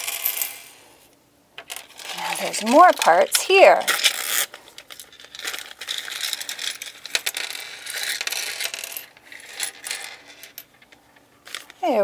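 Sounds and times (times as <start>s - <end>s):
plastic pieces clattering onto table: 1.6s - 12.0s
plastic bag crinkling: 1.8s - 8.7s.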